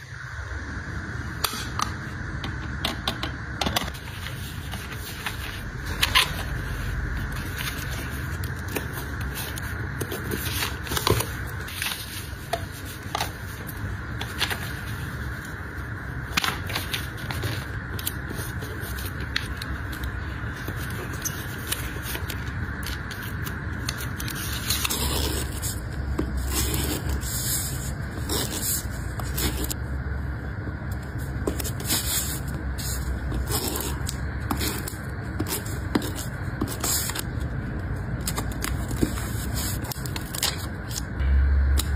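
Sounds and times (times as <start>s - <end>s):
paper and plastic packaging rustling: 3.8s - 15.6s, 31.1s - 41.1s.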